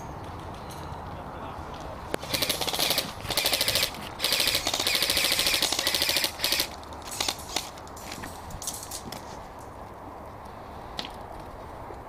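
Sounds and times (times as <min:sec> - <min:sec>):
airsoft rifles firing bursts: 0:02.2 - 0:07.7.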